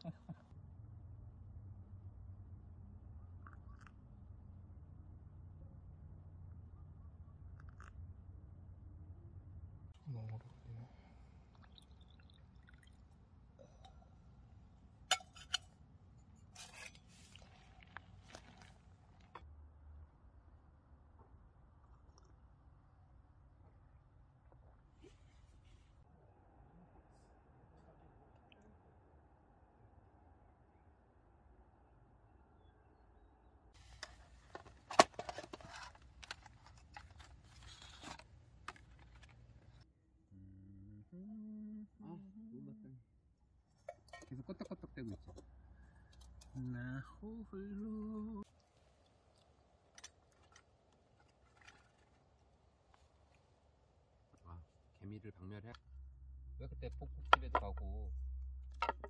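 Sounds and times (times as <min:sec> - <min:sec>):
metal paint tin opening: 0:34.0 - 0:39.3.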